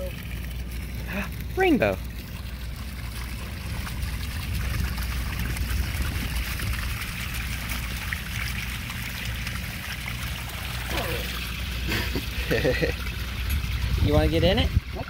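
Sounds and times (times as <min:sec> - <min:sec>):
rainwater trickling and pouring: 0:00.0 - 0:15.0
low rumble: 0:00.1 - 0:09.5.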